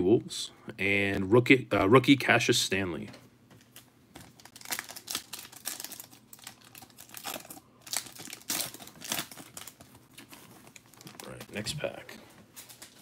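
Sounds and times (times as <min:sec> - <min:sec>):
foil wrapper tearing and crinkling: 0:04.2 - 0:11.4, 0:12.6 - 0:13.0.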